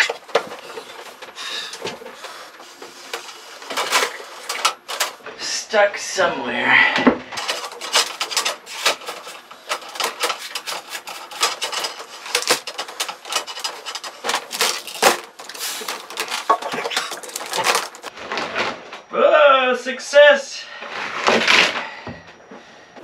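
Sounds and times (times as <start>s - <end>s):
tubing scraping against wood: 0.0s - 5.3s, 7.4s - 18.7s.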